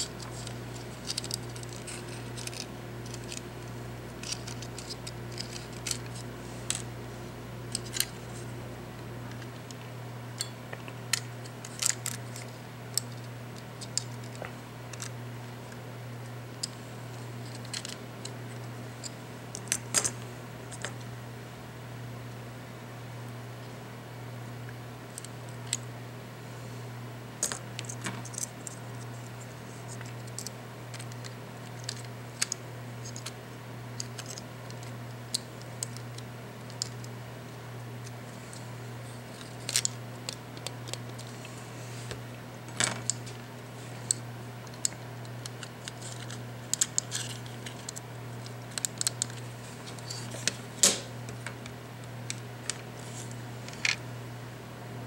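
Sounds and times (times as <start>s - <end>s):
steady low hum: 0.0s - 55.0s
small clicks of plastic parts: 0.1s - 6.9s, 7.7s - 8.1s, 10.4s - 15.2s, 16.5s - 16.8s, 17.4s - 21.0s, 27.4s - 33.4s, 34.0s - 37.1s, 39.3s - 41.5s, 44.0s - 54.0s.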